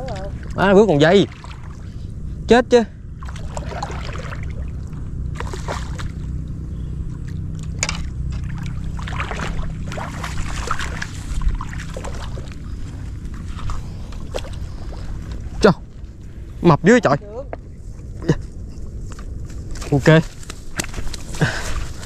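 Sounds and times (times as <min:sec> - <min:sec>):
fish splashing water: 0:00.0 - 0:02.0, 0:03.1 - 0:06.5, 0:07.1 - 0:15.5
wind rumble on microphone: 0:00.0 - 0:22.0.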